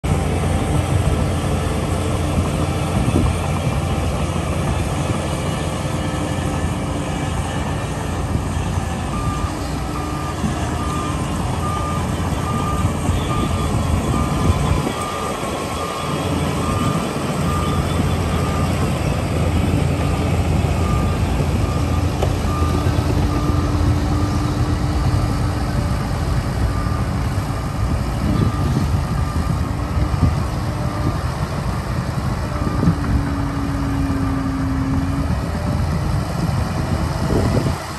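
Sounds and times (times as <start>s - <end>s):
diesel machinery rumbling: 0.0s - 37.9s
reversing alarm beeping: 4.5s - 31.2s.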